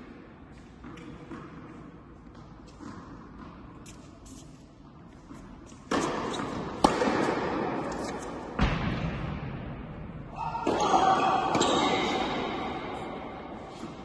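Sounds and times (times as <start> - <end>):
tennis ball strikes echoing: 5.4 - 10.0, 10.6 - 14.0.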